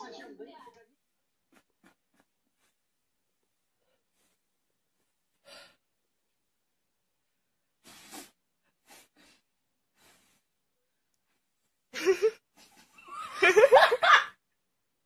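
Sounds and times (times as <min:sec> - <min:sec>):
breathy puffs of air: 0:07.8 - 0:10.5.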